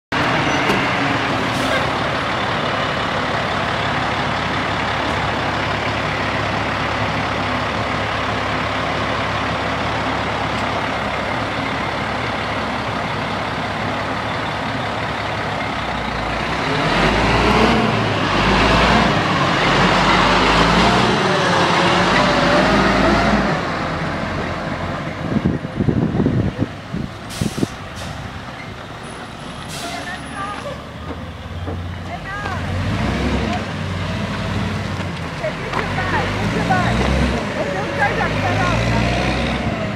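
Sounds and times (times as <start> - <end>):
diesel truck engine idling and revving: 0.1 - 39.9
air brakes hissing: 27.3 - 28.7, 29.5 - 30.4.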